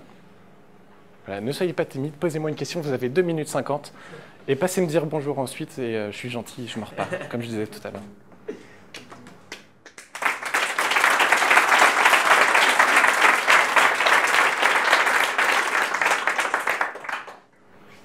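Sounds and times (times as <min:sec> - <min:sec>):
audience applauding: 0:09.9 - 0:17.5.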